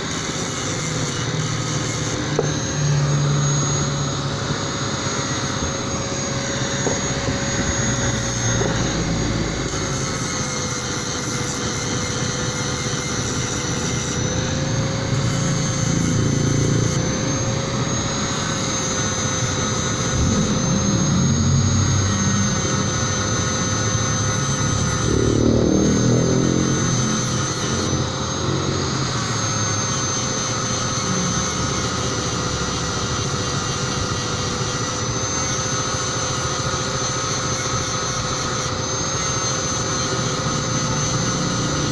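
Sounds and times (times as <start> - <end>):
angle grinder grinding metal: 0.0 - 41.9.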